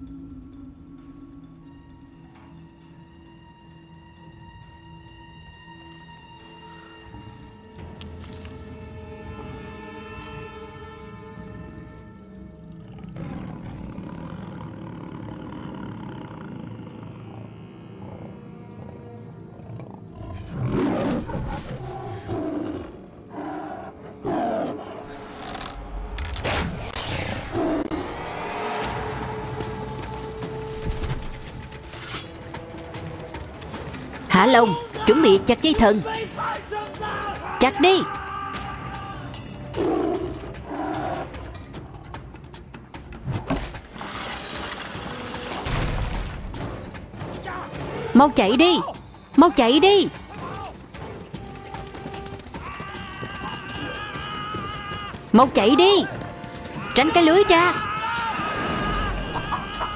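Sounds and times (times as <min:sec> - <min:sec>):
tense film score: 0:00.0 - 0:59.9
tiger roaring and growling: 0:11.4 - 0:26.4, 0:27.0 - 0:30.2, 0:39.6 - 0:46.8.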